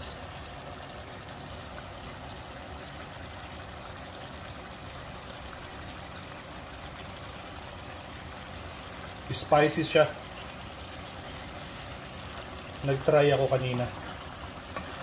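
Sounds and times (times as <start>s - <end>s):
sauce bubbling in a pan: 0.0s - 15.0s.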